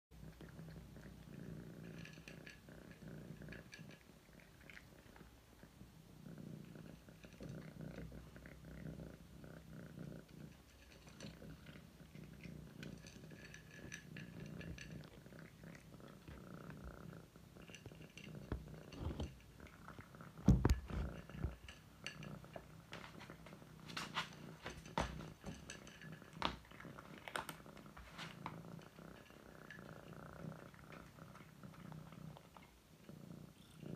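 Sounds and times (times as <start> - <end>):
cat purring: 0.1 - 33.9
crunching of kibble: 10.2 - 32.8.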